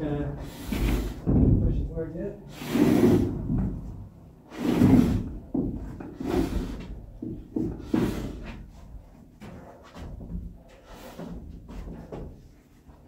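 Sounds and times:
wooden joist scraping: 0.0 - 13.0
sharp wooden knocks: 1.2 - 1.8.

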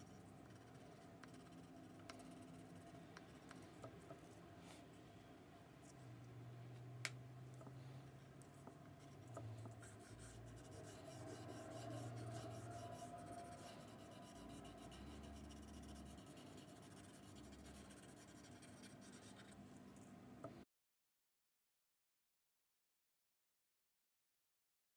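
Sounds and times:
crayon scribbling on paper: 9.8 - 19.5.

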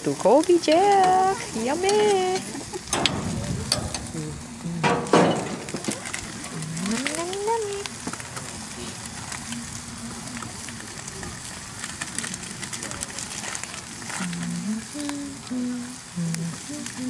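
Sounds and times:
burger patties sizzling on grill: 0.0 - 17.0
person's voice: 4.0 - 7.9, 14.2 - 17.0.

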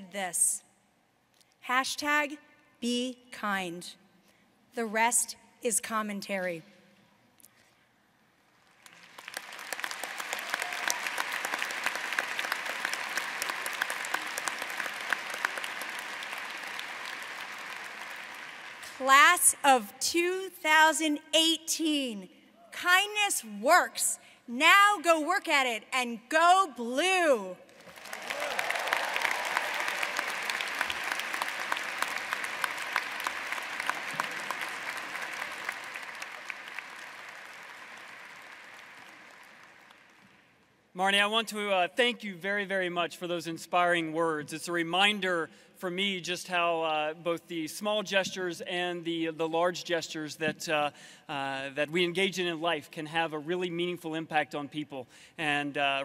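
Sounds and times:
large audience applauding: 8.6 - 19.2, 27.7 - 40.5.

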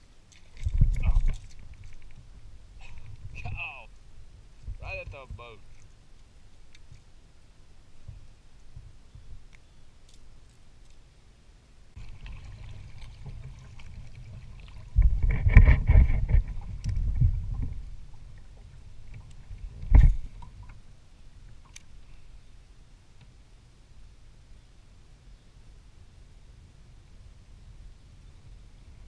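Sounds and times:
water sloshing against hull: 0.2 - 7.1, 12.0 - 22.2
wind buffeting microphone: 0.6 - 5.6, 12.0 - 20.7.

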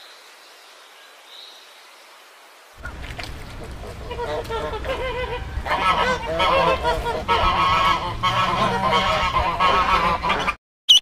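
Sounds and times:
ducks quacking: 2.8 - 10.6.

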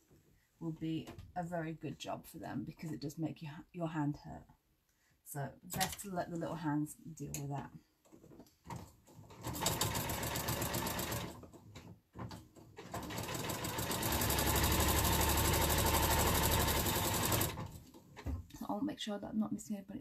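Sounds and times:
sewing machine stitching: 9.3 - 11.6, 12.2 - 18.3.

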